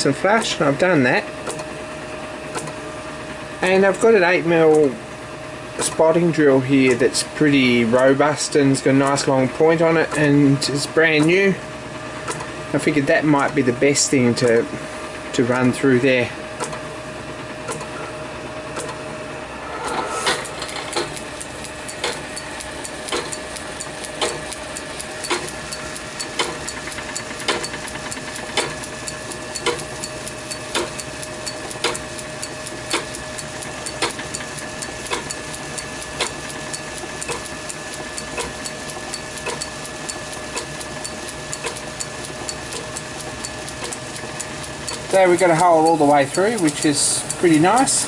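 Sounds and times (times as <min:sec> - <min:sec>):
sharp repeating click: 0:01.4 - 0:01.7, 0:18.8 - 0:19.0, 0:19.8 - 0:48.0
lathe machine hum: 0:16.2 - 0:48.0.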